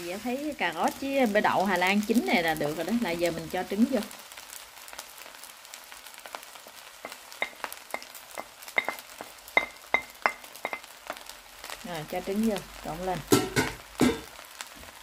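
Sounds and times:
rice sizzling in a pan: 0.0s - 15.0s.

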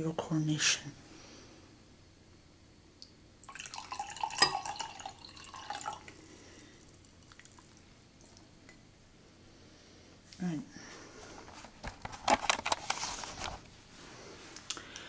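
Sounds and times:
juice pouring into glass: 3.4s - 8.4s.

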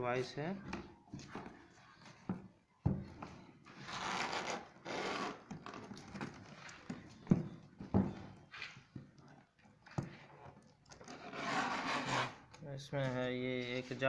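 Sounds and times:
knife scraping packing tape: 3.8s - 5.5s, 11.1s - 12.5s.

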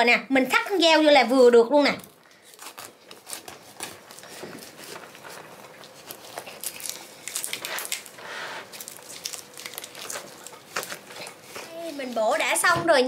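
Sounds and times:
knife crunching through fruit rind: 2.0s - 12.2s.

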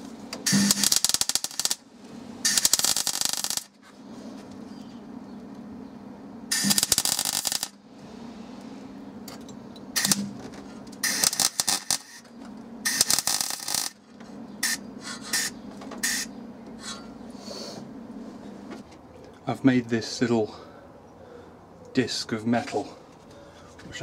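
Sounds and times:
steady low hum: 0.0s - 24.0s
crackly metalworking bursts: 0.4s - 3.9s, 6.5s - 7.8s, 9.9s - 10.4s, 11.0s - 16.3s.

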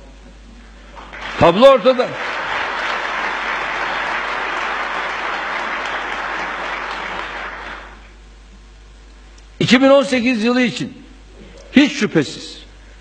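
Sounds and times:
large audience applauding: 0.9s - 8.1s.

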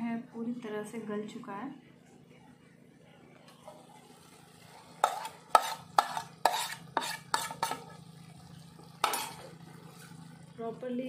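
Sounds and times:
spoon clanking and scraping on metal pan: 4.8s - 8.0s, 9.0s - 9.6s.

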